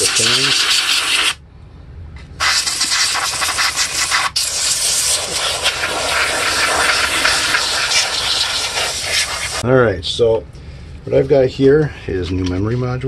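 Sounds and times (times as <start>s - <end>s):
compressed air can hissing: 0.0s - 1.4s, 2.4s - 9.6s.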